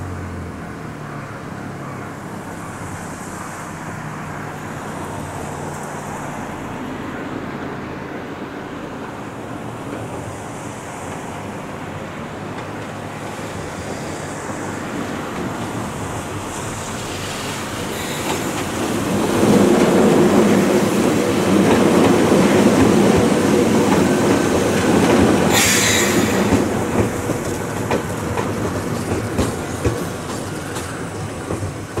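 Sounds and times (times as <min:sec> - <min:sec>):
train passing rumble: 0:00.0 - 0:32.0
brief hiss: 0:25.5 - 0:26.7.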